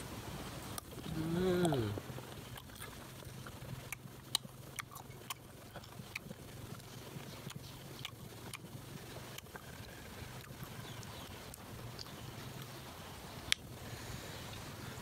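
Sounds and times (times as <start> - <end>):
crunching and smacking chewing: 0.7 - 13.8
person humming: 1.0 - 2.0.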